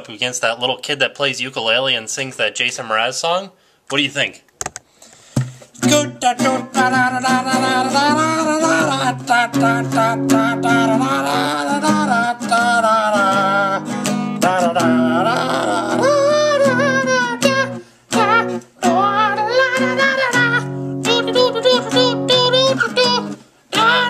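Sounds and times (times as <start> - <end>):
acoustic guitar strumming: 5.4 - 24.0
man singing: 5.8 - 24.0.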